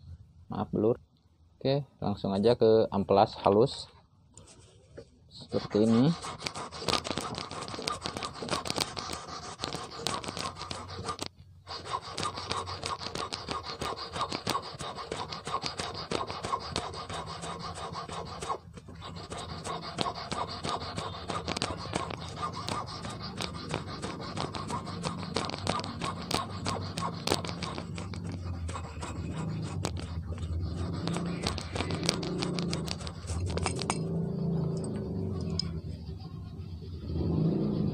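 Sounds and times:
sandpaper rasping on wire: 5.4 - 34.9.

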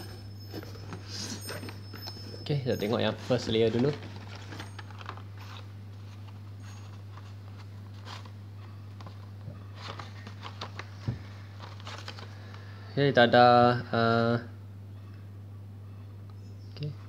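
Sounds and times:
packaging rustling and tapping: 0.0 - 12.6
steady low hum: 0.0 - 17.0.

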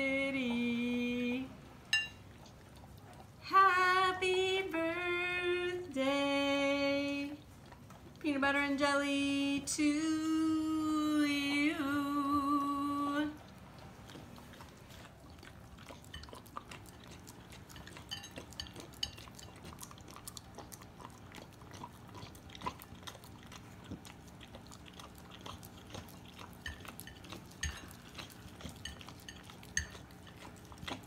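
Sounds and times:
dog licking and chewing: 2.0 - 4.4, 6.8 - 8.5, 11.2 - 31.0.

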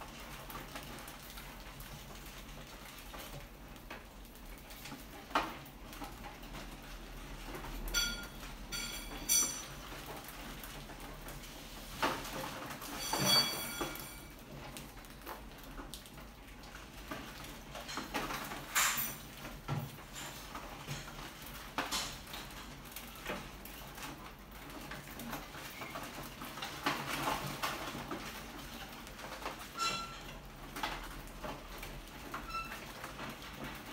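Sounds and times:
rats scrabbling on wire mesh: 0.0 - 33.9.

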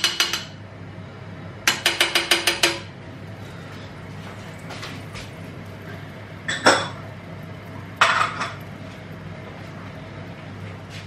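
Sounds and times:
steady low hum: 2.7 - 11.0
cookware clattering: 8.0 - 8.6.

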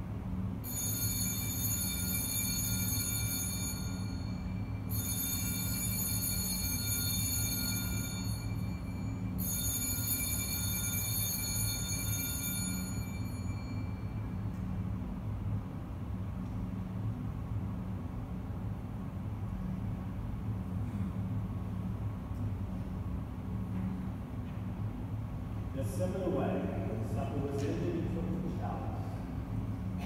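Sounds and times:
altar bell ringing: 0.6 - 14.5.

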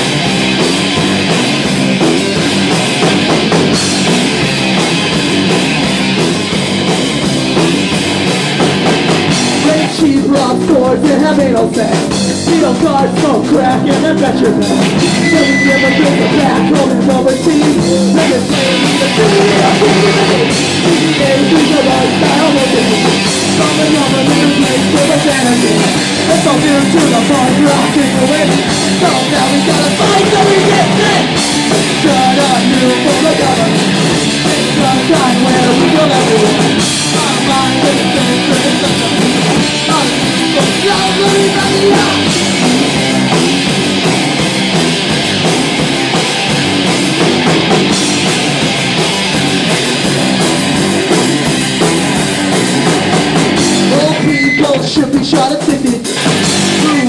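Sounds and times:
drum kit: 0.0 - 57.0
electric guitar: 0.0 - 57.0
person singing: 9.6 - 42.9, 53.8 - 57.0.

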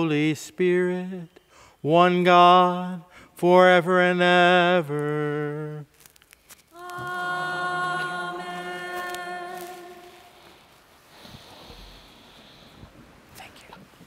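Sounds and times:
person singing a long note: 6.7 - 10.6.

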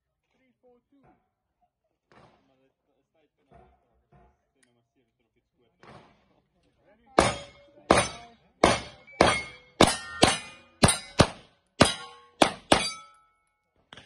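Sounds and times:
pistol shots: 7.2 - 13.0
metallic clang of steel plates: 7.2 - 13.3.

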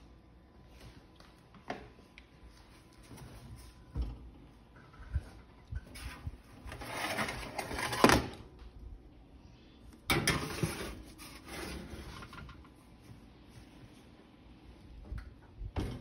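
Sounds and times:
metal tray scraping on oven rack: 10.1 - 12.4.

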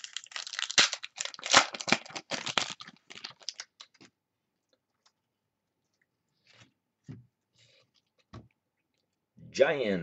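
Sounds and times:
wrapper crinkling and tearing: 0.0 - 4.1.

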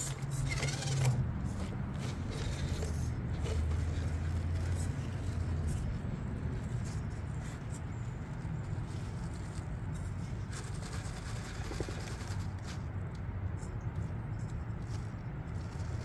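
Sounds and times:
tyres scraping on rock: 0.0 - 8.0
toy car motor rumble: 0.0 - 12.8.

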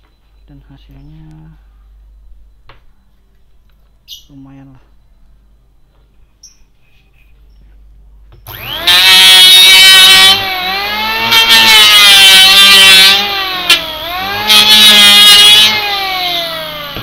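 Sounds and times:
electric planer motor whining: 8.5 - 17.0
planer blades shaving wood: 8.5 - 17.0.

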